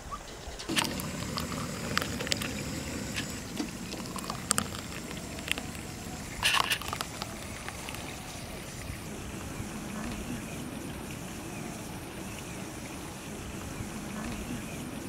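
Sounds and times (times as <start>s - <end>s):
steady background hiss: 0.0s - 15.0s
thick liquid pouring into a cup: 0.7s - 9.1s.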